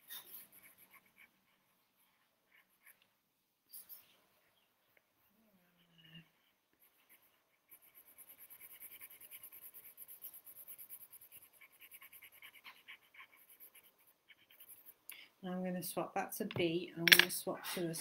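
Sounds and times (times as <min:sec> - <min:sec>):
pencil scratching on paper: 0:00.0 - 0:03.1, 0:06.1 - 0:15.0.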